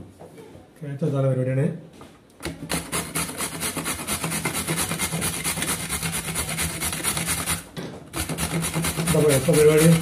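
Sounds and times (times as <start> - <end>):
carrot rasping on metal grater: 2.6 - 10.0.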